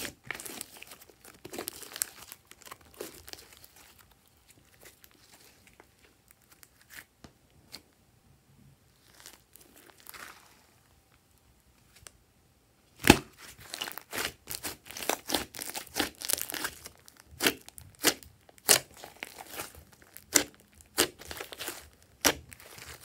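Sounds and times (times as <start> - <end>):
slime popping and squelching: 0.0 - 4.0, 13.0 - 23.0.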